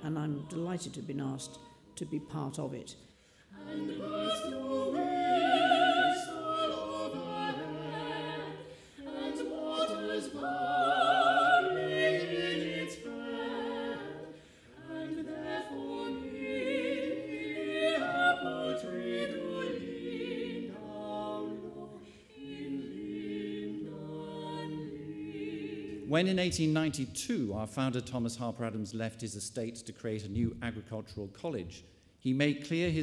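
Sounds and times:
small mixed choir singing: 3.5s - 26.1s.

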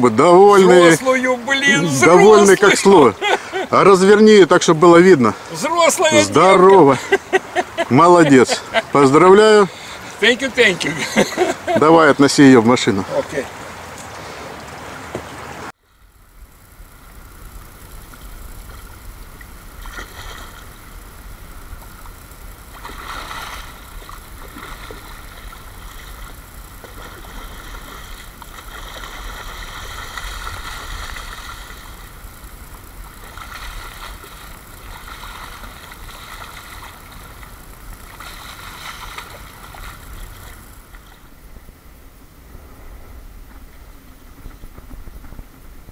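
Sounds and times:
river water rushing: 4.9s - 15.8s, 18.2s - 41.7s
fish splashing at the surface: 22.1s - 41.2s.

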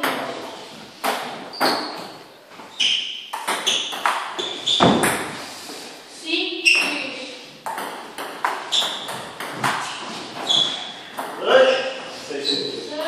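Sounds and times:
ball bouncing on table: 3.3s - 5.4s, 7.6s - 9.8s.

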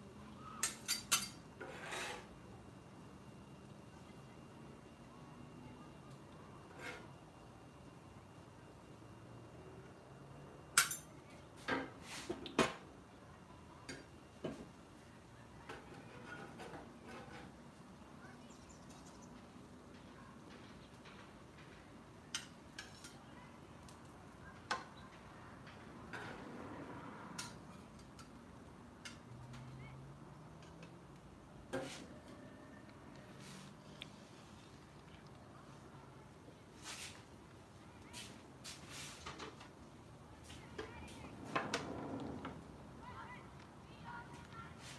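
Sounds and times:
metal spatula scraping griddle: 0.6s - 2.4s, 6.7s - 7.1s, 16.0s - 17.6s.

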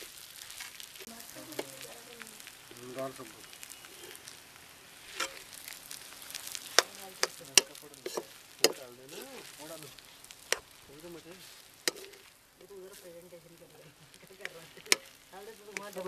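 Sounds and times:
soft frying sizzle: 0.0s - 16.0s
metal spoon scraping a pan: 4.9s - 5.6s, 6.2s - 10.8s, 11.4s - 12.3s, 14.4s - 16.0s.

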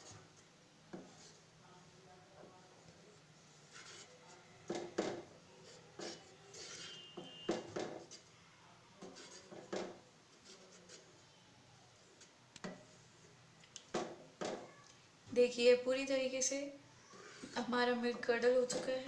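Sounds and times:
spoon scraping and knocking pan: 4.7s - 8.3s.

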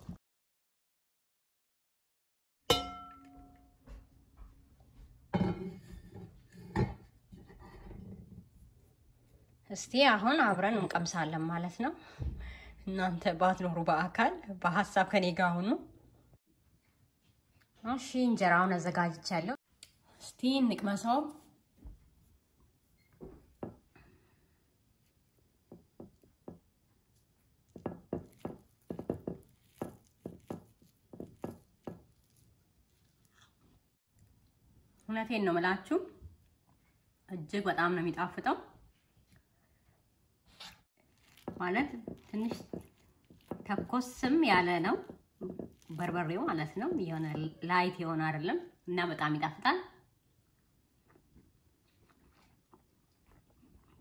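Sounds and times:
pot lid clinking: 2.7s - 3.4s.

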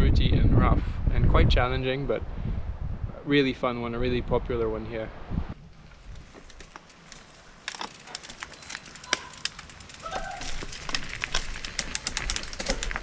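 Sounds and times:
bike tyres crunching over gravel: 5.6s - 13.0s
sharp clicks and rattles: 6.0s - 13.0s.

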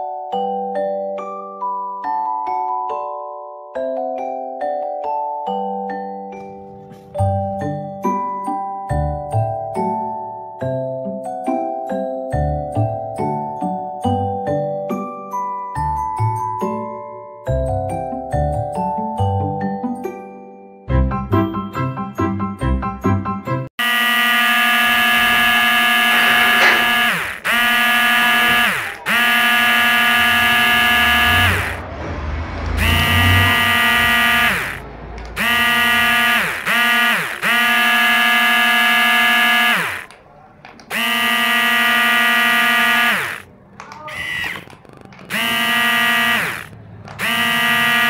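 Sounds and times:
electric gear motor whining: 23.8s - 40.2s, 40.9s - 48.0s.

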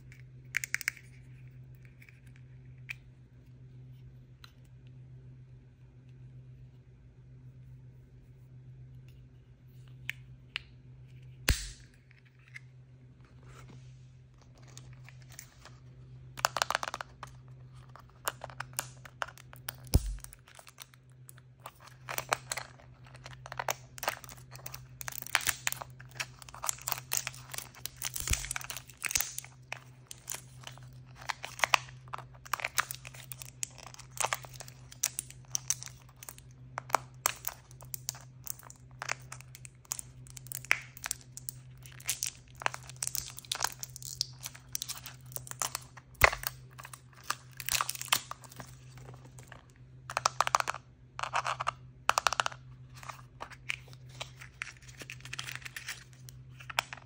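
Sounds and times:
faint low hum: 0.0s - 57.0s
plastic wrapper crinkling and tearing: 17.8s - 49.7s, 53.0s - 57.0s.

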